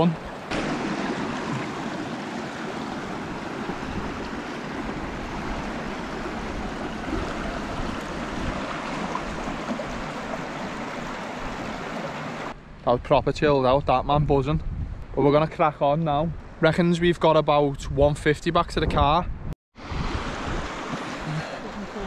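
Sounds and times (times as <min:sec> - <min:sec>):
stream running over stones: 0:00.0 - 0:12.6, 0:20.0 - 0:22.0.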